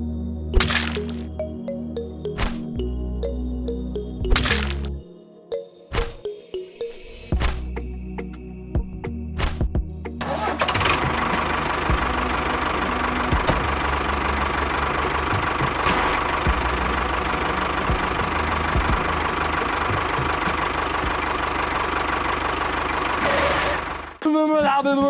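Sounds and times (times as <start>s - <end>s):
tractor engine running: 0.6s - 5.0s, 9.9s - 24.8s.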